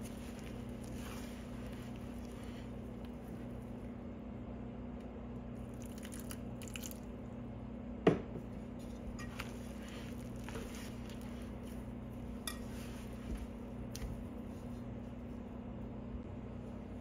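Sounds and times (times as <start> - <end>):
dough squelching: 0.0 - 4.0, 5.5 - 7.2, 8.5 - 15.7
steady low hum: 0.0 - 17.0.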